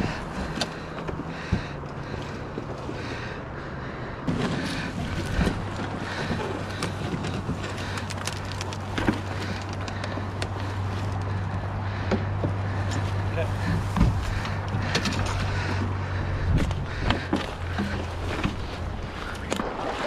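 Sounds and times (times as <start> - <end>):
kayaks and paddles knocking: 0.0 - 20.0.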